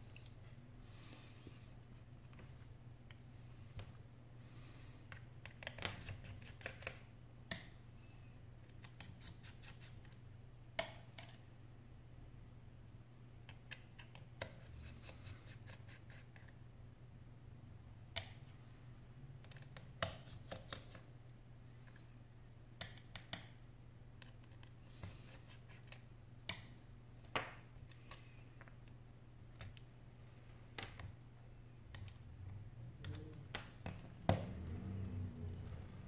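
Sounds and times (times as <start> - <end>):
fingers tapping phone parts: 5.1 - 7.8, 13.4 - 16.6, 19.4 - 21.1, 22.8 - 23.6, 30.7 - 34.6
steady low hum: 23.6 - 36.0.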